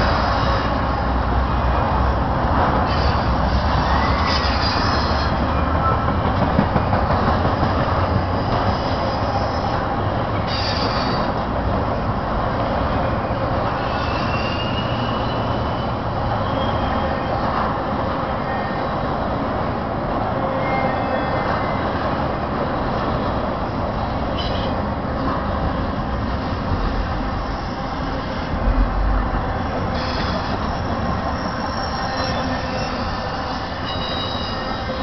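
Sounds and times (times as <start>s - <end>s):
freight train wheels rumbling: 0.0s - 35.0s
high-pitched wheel squeals: 2.9s - 6.0s, 8.8s - 11.4s, 13.7s - 17.5s, 29.6s - 35.0s.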